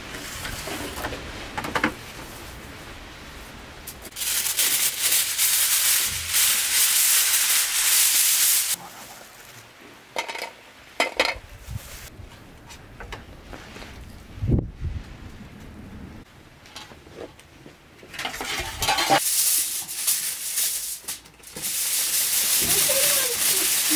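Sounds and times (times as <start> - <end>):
aluminium foil crinkling: 4.1 - 9.6, 18.9 - 23.9.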